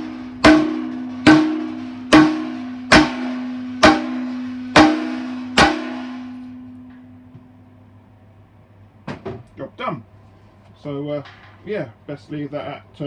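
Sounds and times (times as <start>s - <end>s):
metal cask ringing: 0.0s - 7.3s
hammer blows on metal cask: 0.0s - 7.5s.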